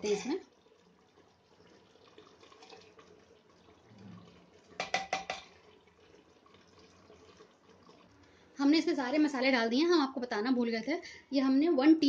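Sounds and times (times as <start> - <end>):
metal spoon clinking on pot: 4.8 - 5.5.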